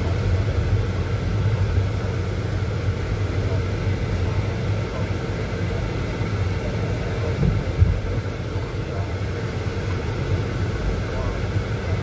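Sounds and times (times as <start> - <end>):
car cabin rumble: 0.0 - 12.0
brief low thump: 7.4 - 8.0.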